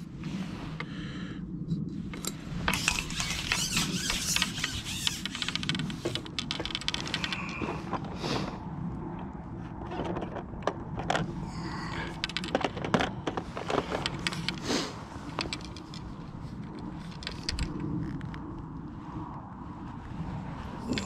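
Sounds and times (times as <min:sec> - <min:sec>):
steady low rumble: 0:00.0 - 0:21.0
fishing tackle clicking and rattling: 0:02.1 - 0:08.2, 0:11.0 - 0:14.6, 0:15.2 - 0:18.0.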